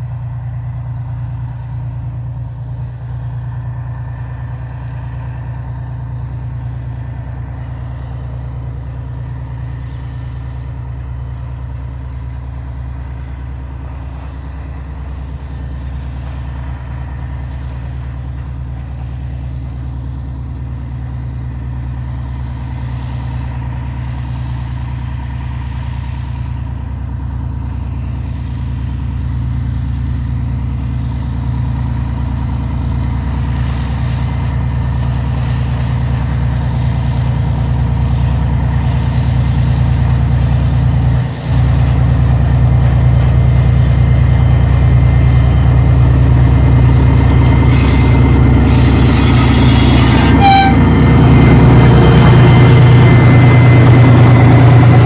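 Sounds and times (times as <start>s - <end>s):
diesel locomotive engine drone: 0.0s - 55.0s
locomotive clatter: 24.7s - 55.0s.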